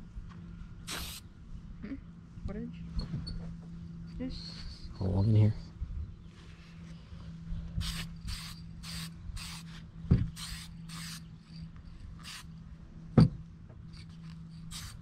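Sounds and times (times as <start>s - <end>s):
spray paint can hissing: 0.8s - 1.2s, 7.8s - 9.7s, 10.3s - 11.3s, 12.2s - 12.5s, 14.6s - 15.0s
dull thumps: 13.2s - 13.4s.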